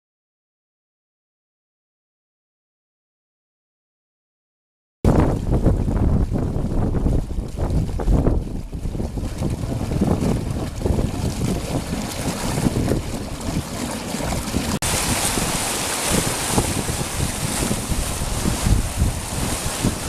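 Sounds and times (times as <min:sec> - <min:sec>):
wind gusting on microphone: 0:05.1 - 0:20.0
rushing creek water: 0:07.6 - 0:20.0.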